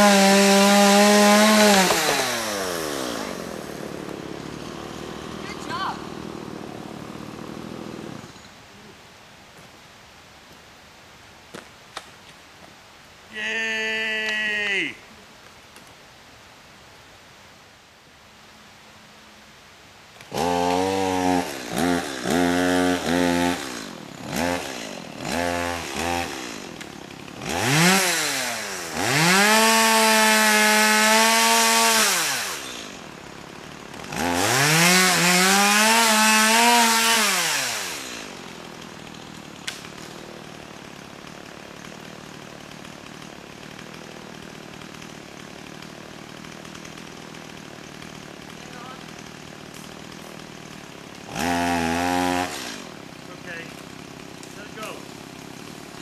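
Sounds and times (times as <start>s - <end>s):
chainsaw revving and cutting log: 0.0s - 8.4s, 20.2s - 56.0s.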